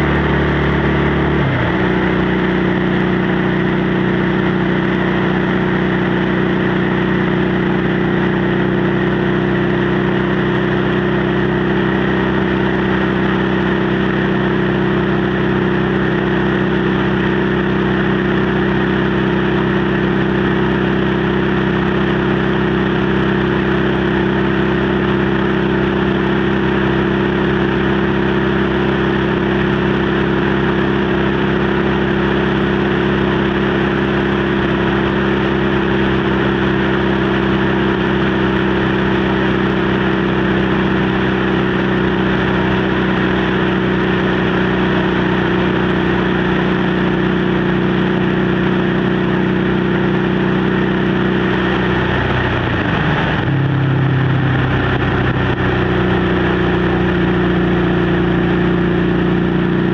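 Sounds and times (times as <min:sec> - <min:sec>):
motorcycle engine cruising: 0:00.0 - 0:59.9.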